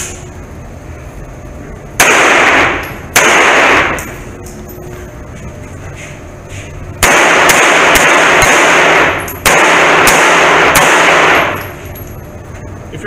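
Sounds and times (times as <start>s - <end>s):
handgun shots indoors: 2.0s - 4.6s, 7.0s - 12.1s.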